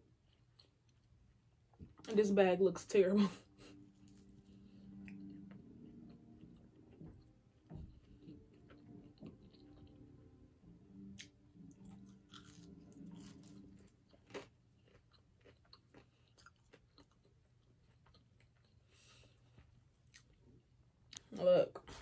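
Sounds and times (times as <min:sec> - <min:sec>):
low hum: 0:02.9 - 0:15.2
chewing with mouth clicks: 0:11.1 - 0:20.4.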